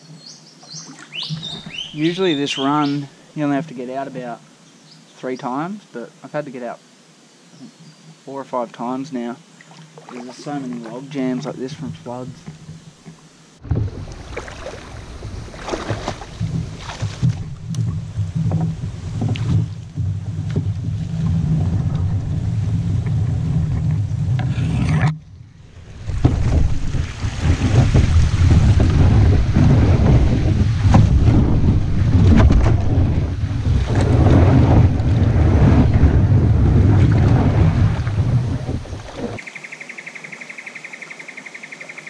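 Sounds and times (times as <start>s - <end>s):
water splashing and sloshing: 0.7s - 2.0s, 9.6s - 39.4s
heavy low rumble: 13.6s - 39.4s.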